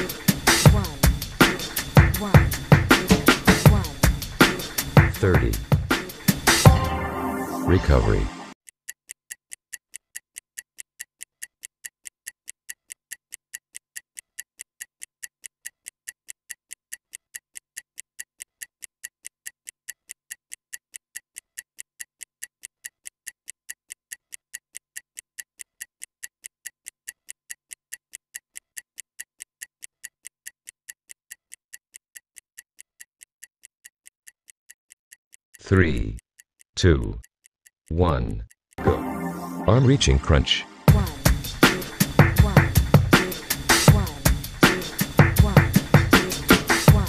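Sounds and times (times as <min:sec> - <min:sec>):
stopwatch ticking: 0:00.0 - 0:06.8, 0:08.6 - 0:38.8, 0:40.9 - 0:47.0.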